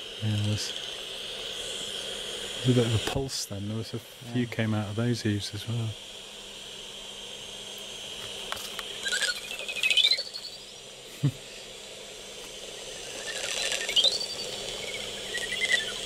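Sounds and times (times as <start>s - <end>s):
steady hiss: 0.0s - 16.0s
bats squeaking: 8.6s - 11.0s, 12.6s - 16.0s.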